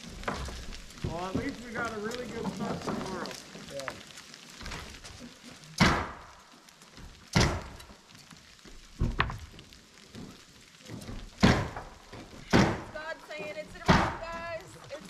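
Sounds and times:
sleet pattering: 0.0 - 15.0
loud thumps: 5.8 - 6.3, 7.3 - 7.9, 9.0 - 9.5, 11.0 - 13.0, 13.8 - 14.4.

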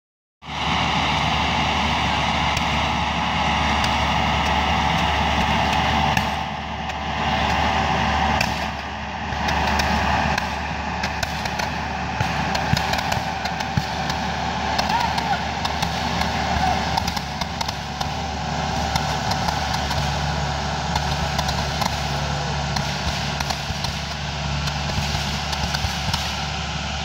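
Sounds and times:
diesel engine running: 0.4 - 27.0
steady fireworks hiss: 0.5 - 27.0
fireworks popping and crackling: 8.4 - 8.8, 9.4 - 26.6.

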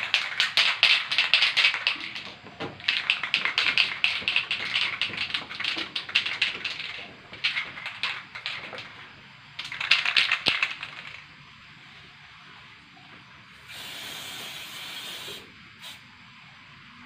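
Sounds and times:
spray can ball rattling: 0.0 - 11.3.

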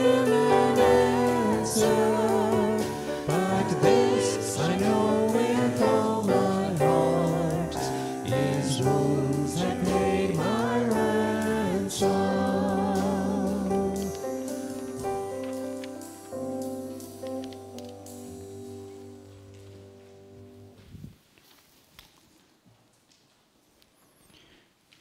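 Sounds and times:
congregation singing a hymn: 0.0 - 16.1.

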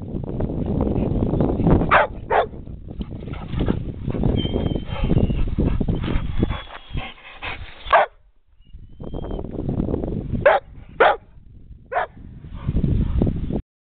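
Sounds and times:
dog barking: 1.9 - 2.6, 7.9 - 8.2, 10.4 - 11.3, 11.9 - 12.7.

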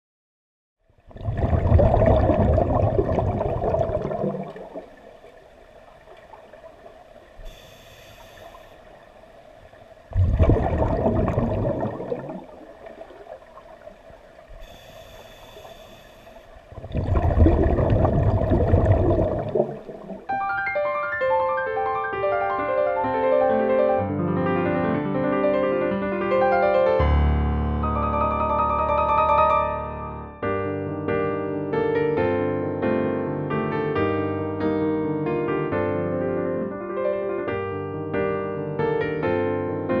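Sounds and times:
gurgling exhaled bubbles: 1.0 - 5.4, 10.1 - 14.7, 16.6 - 20.4
hissing regulator inhale: 7.4 - 8.9, 14.5 - 16.7.

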